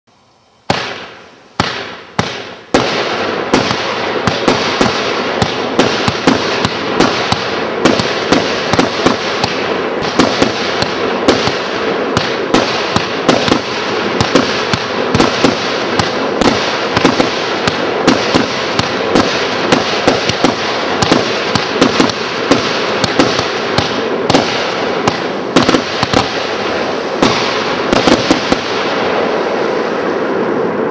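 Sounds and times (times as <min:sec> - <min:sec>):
fireworks hiss and crackle: 0:00.1 - 0:30.9
fireworks shots and bursts: 0:00.6 - 0:30.9.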